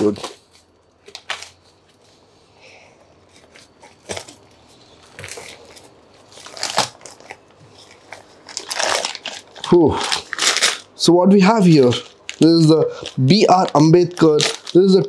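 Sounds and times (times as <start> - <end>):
plastic bags of coins rustling: 5.2 - 15.0.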